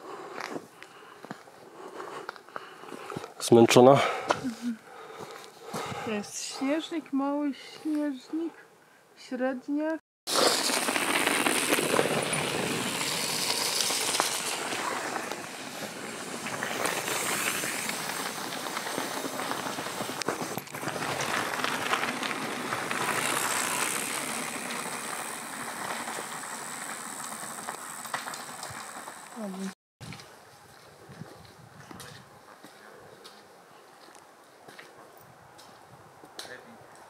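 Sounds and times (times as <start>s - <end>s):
bike rattling: 10.3s - 29.7s
bike tyres crunching over gravel: 10.3s - 30.8s.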